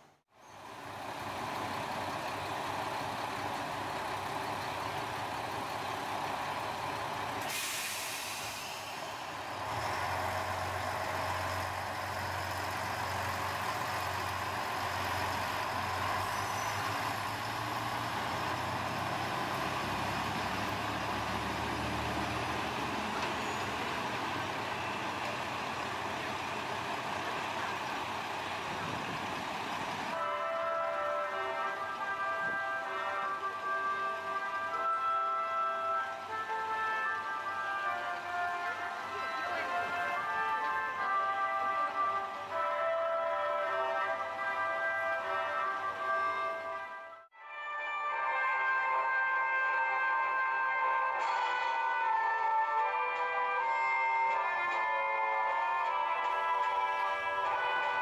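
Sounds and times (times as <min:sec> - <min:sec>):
diesel train engine drone: 0:00.0 - 0:47.3
air brake hiss: 0:07.4 - 0:09.3.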